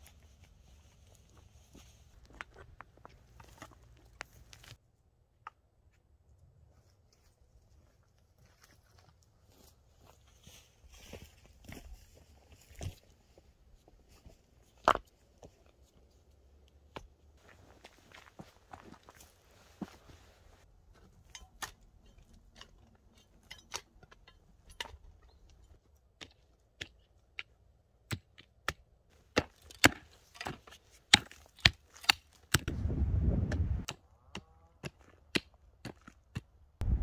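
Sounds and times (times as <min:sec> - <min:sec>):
digging tool striking stony soil: 0:28.1 - 0:32.8
low rumbling noise: 0:32.7 - 0:33.8.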